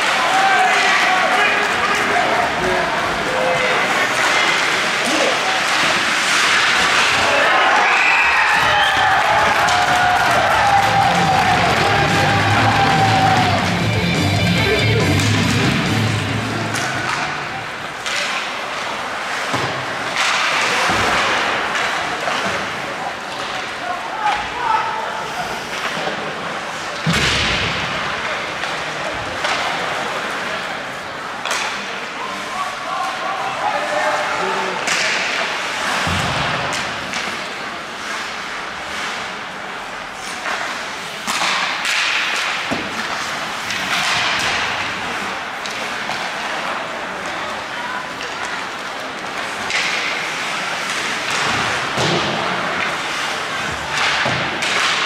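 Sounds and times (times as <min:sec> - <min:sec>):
ice hockey skating and play noise: 0:00.0 - 0:55.0
rock guitar music: 0:13.6 - 0:16.5.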